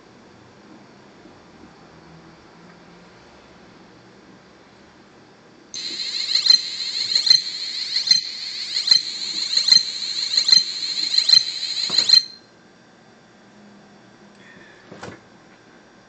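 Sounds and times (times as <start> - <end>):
sharp clicks: 5.8 - 12.4
high-pitched buzzer beep: 5.8 - 12.5.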